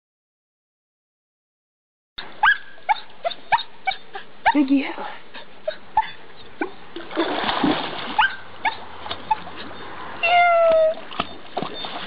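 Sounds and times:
puppy splashing through water: 0:06.6 - 0:12.0.

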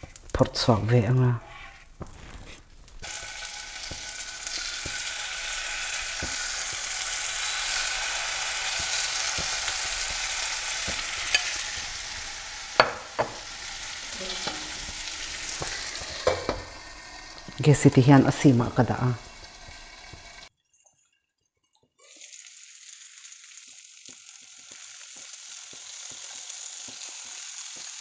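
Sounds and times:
chicken sizzling in hot oil: 0:00.0 - 0:20.5, 0:21.9 - 0:28.0
tongs clicking on pan: 0:03.0 - 0:16.8.

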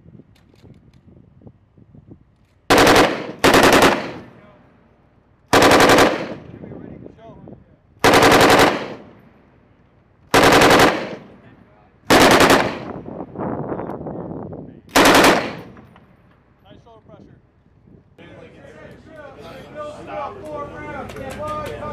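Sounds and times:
machine gun bursts: 0:02.7 - 0:04.3, 0:05.5 - 0:06.4, 0:08.0 - 0:09.0, 0:10.4 - 0:11.2, 0:12.1 - 0:13.0, 0:15.0 - 0:15.8.

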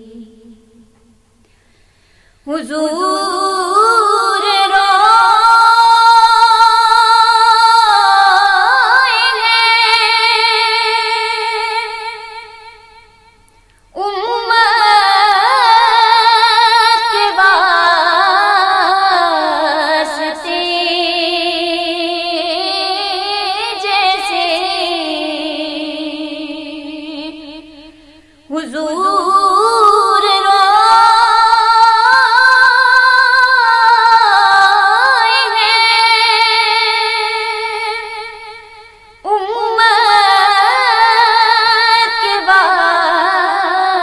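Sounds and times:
woman singing with vibrato: 0:00.0 - 0:01.4, 0:02.3 - 0:44.0.

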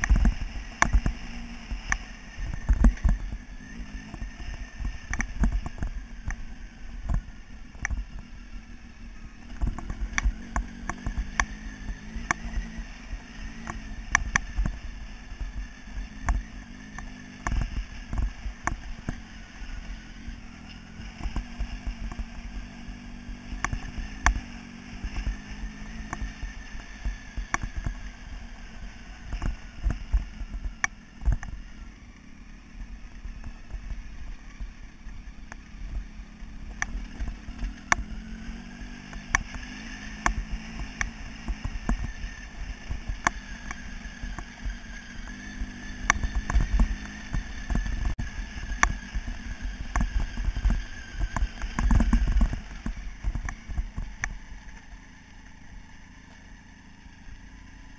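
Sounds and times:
knocks and clatter from rough ride: 0:00.0 - 0:08.3, 0:09.4 - 0:12.8, 0:13.6 - 0:19.3, 0:29.2 - 0:31.6, 0:38.8 - 0:54.9
motorcycle engine running: 0:00.0 - 0:57.9.

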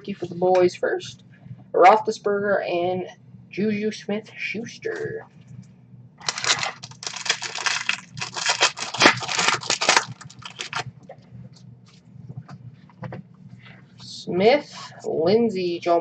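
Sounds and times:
cards pulled out of wrapper: 0:06.2 - 0:10.8
plastic foil wrapper tearing: 0:06.2 - 0:10.8.

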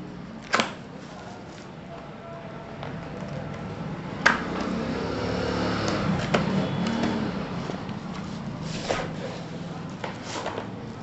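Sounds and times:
cardboard and plastic film rustling: 0:07.6 - 0:11.0.

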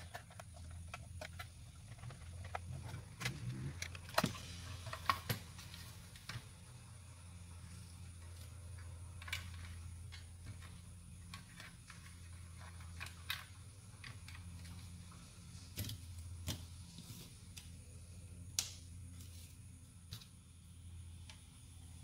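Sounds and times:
clicks of tools and plastic parts: 0:00.0 - 0:06.4.

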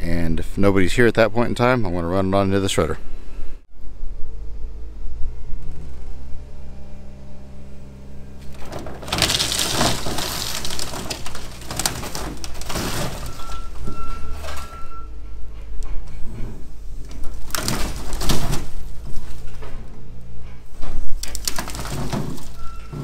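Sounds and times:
diesel engine running: 0:03.2 - 0:23.0
sheet metal crunching: 0:08.2 - 0:23.0
glass breaking: 0:08.6 - 0:14.9.

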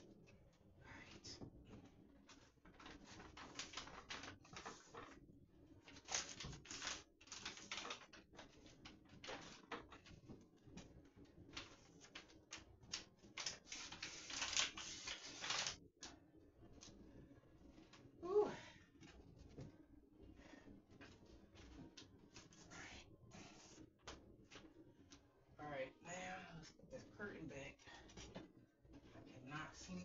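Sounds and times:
paper shade rustling and crinkling: 0:02.2 - 0:05.2, 0:05.8 - 0:10.4, 0:11.5 - 0:15.8.

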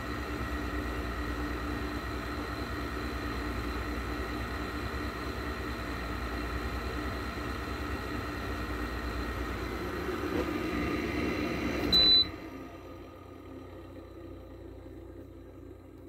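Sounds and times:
air conditioner humming: 0:07.6 - 0:15.9
short high beep: 0:11.9 - 0:12.4.

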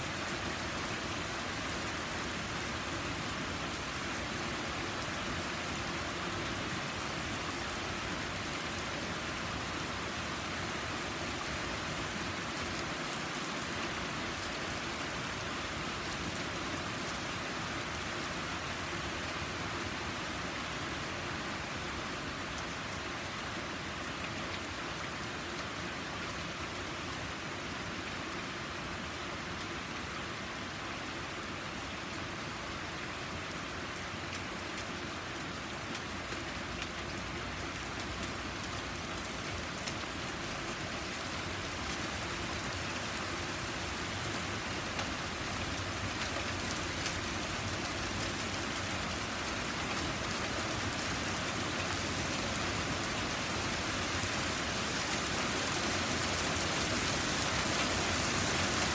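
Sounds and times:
heavy rain hissing: 0:40.5 - 0:58.9.

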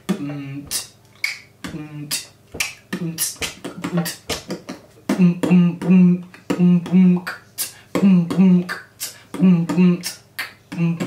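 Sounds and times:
beatboxing mouth percussion: 0:00.0 - 0:11.0
short voiced sounds: 0:00.0 - 0:11.0.

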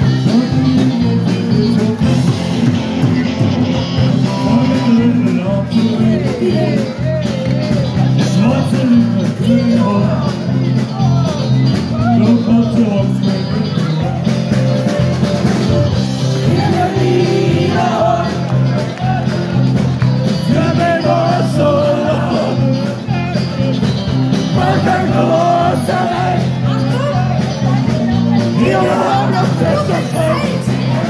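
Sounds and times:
person singing: 0:00.0 - 0:02.8, 0:04.0 - 0:14.3
live band playing amplified music: 0:00.0 - 0:31.0.

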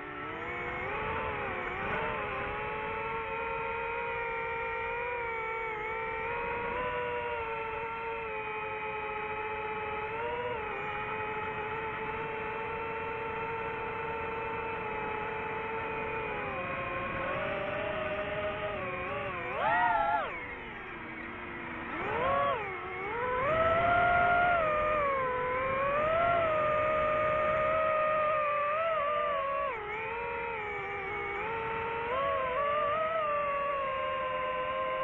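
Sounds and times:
drone propellers whining: 0:00.0 - 0:35.0.

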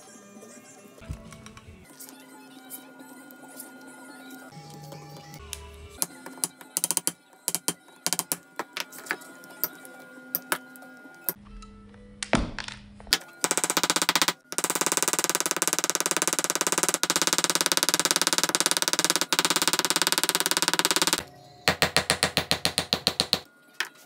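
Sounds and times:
hammer tapping on metal block: 0:20.9 - 0:23.5.

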